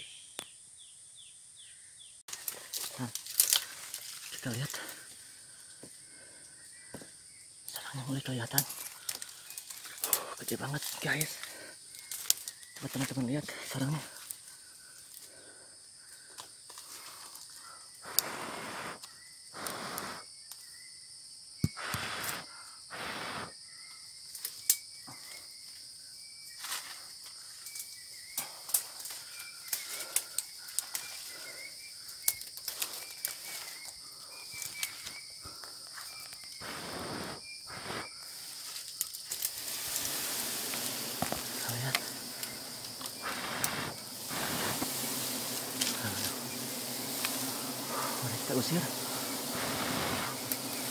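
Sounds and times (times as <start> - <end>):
forest insects droning: 0.0 - 50.9
twigs snapping: 2.3 - 4.7, 8.5 - 13.2, 27.7 - 31.4, 32.1 - 33.7, 38.8 - 43.7
leaves and branches rustling: 2.3 - 20.0, 24.2 - 50.9.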